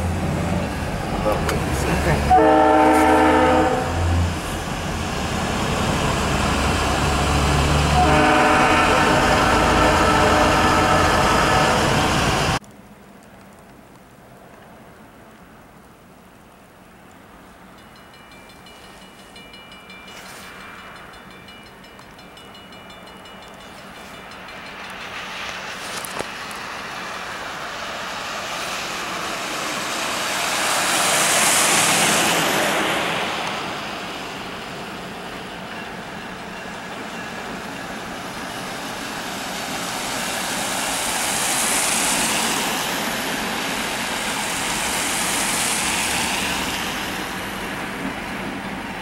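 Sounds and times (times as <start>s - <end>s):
diesel locomotive humming: 0.0s - 12.6s
tyres hissing on wet road: 0.0s - 12.6s, 20.0s - 21.2s, 23.6s - 49.0s.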